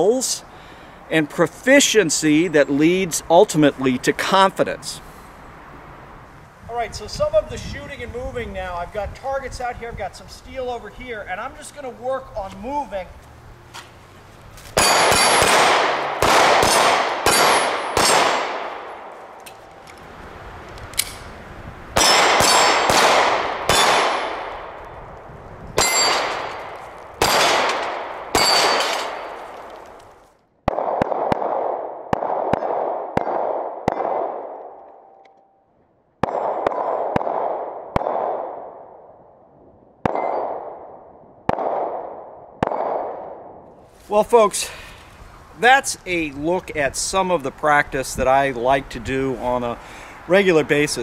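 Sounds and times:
handgun shots: 14.8 - 18.7, 22.0 - 24.5, 25.8 - 29.4
steel targets ringing: 25.8 - 26.6, 28.4 - 29.4.

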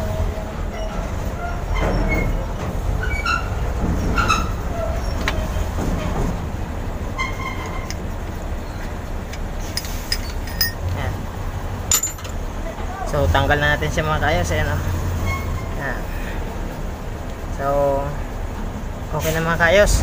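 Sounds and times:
metal clinks and scraping: 9.6 - 11.0, 11.9 - 12.4.

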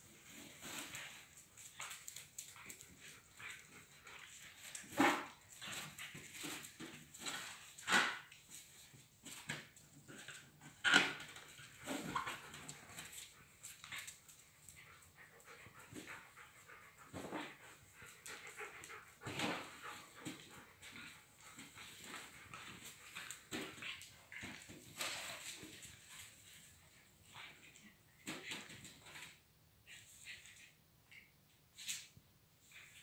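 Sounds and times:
dog panting: 13.4 - 24.6.

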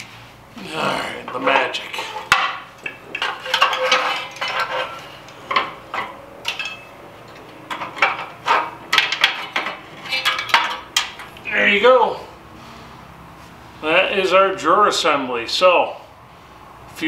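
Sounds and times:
metal parts clinking and scraping: 1.3 - 11.4.

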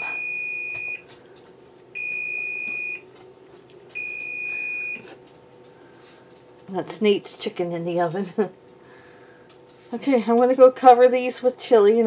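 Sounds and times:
oven timer beeping: 0.0 - 1.1, 1.9 - 3.2, 4.0 - 5.1.

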